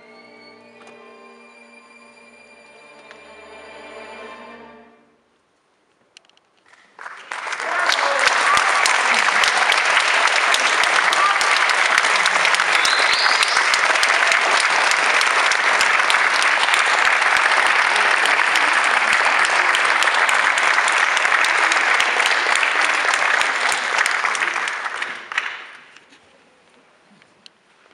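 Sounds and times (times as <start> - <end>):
audience applauding: 6.7 - 26.1.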